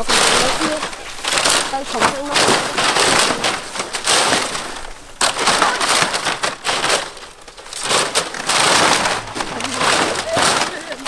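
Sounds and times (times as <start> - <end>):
dry palm fronds crunching: 0.0 - 11.0.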